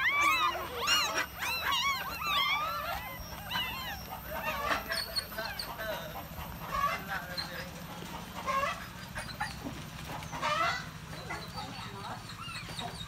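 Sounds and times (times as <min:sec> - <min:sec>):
puppies squealing and whimpering: 0:00.0 - 0:13.0.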